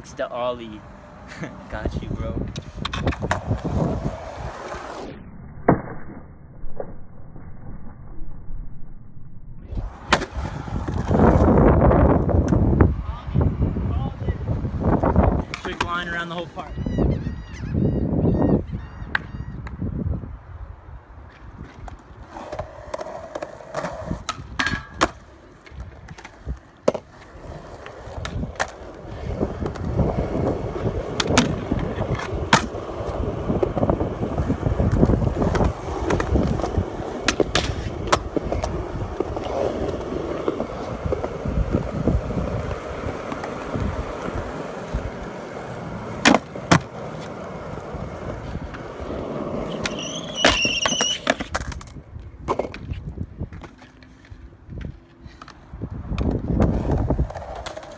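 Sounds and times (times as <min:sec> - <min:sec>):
skateboard wheels rolling on concrete: 0:00.0 - 0:07.8, 0:09.6 - 0:57.9
skateboard tail pops and landings: 0:05.6 - 0:07.0, 0:09.8 - 0:12.6, 0:21.6 - 0:28.8, 0:29.5 - 0:41.9, 0:46.2 - 0:47.4, 0:49.6 - 0:53.7
skateboard trucks grinding metal rail: 0:42.9 - 0:51.6.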